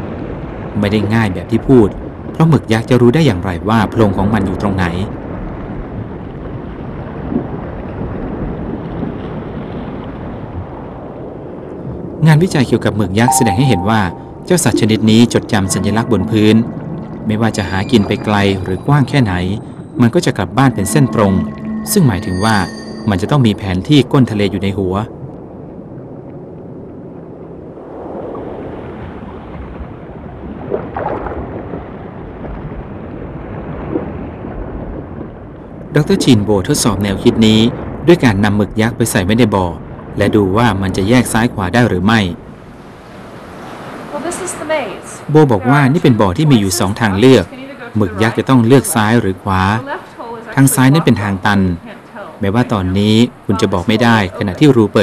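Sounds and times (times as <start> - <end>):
underwater rushing water: 0.0 - 55.0.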